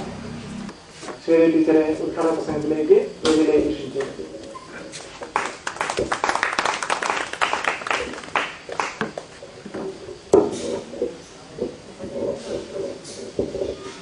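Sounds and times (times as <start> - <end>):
small crowd clapping: 5.1 - 9.3.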